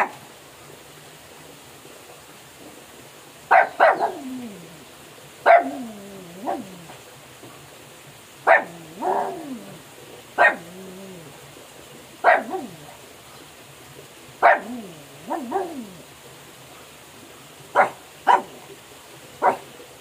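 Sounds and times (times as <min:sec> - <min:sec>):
dog barking: 0:03.5 - 0:04.7, 0:05.4 - 0:06.9, 0:08.4 - 0:09.8, 0:10.4 - 0:11.3, 0:12.2 - 0:13.0, 0:14.4 - 0:16.0, 0:17.7 - 0:18.6, 0:19.4 - 0:19.7.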